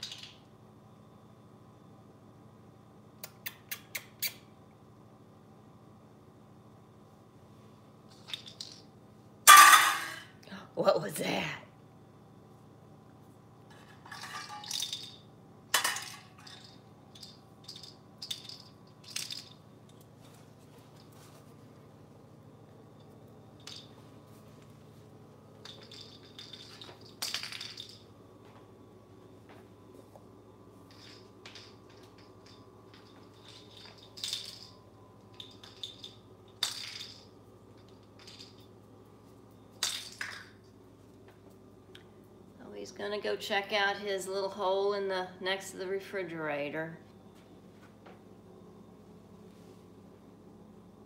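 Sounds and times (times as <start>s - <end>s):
sharp metal clank: 9.5s - 10.2s.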